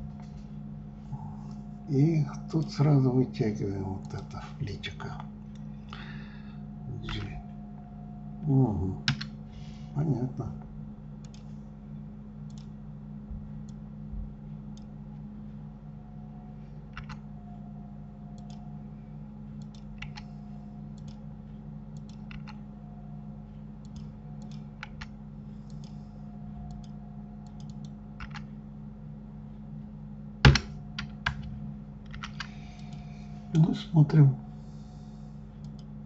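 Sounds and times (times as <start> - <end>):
steady low hum: 0.0 - 36.0
keyboard and mouse clicks: 9.1 - 9.3, 11.2 - 11.5, 12.5 - 12.7, 16.9 - 17.2, 18.4 - 18.6, 19.6 - 20.3, 20.9 - 21.2, 21.9 - 22.6, 23.8 - 25.1, 26.6 - 28.5, 30.4 - 33.0, 35.6 - 35.9.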